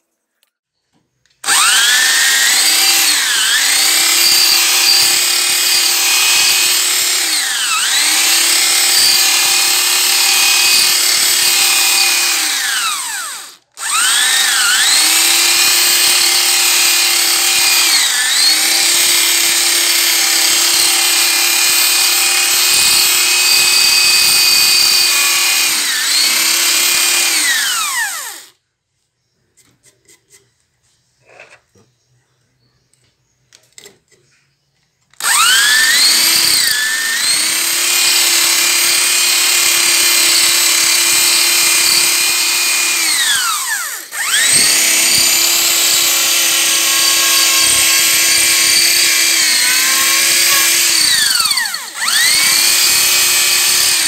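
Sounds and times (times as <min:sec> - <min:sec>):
drill press motor whining: 0:01.4 - 0:28.5, 0:35.2 - 0:54.0.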